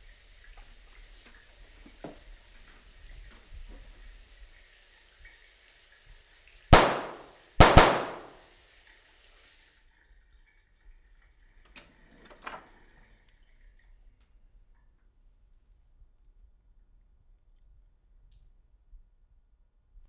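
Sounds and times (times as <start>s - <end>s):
gunshots: 6.7s - 8.4s.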